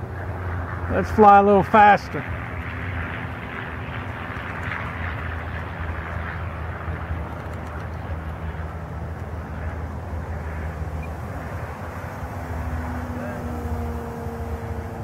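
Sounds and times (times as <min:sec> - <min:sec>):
distant model airplane propeller drone: 0:00.0 - 0:15.0
low outdoor rumble: 0:00.0 - 0:15.0.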